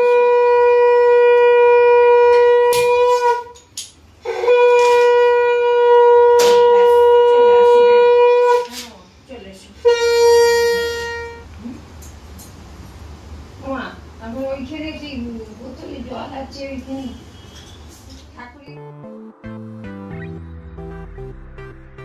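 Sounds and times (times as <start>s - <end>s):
conch shell blasts: 9.8s - 11.5s.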